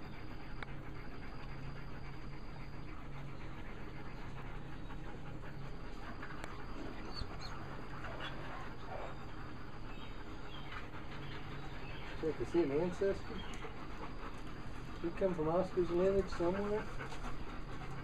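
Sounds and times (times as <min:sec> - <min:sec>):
dog panting: 0:00.0 - 0:18.0.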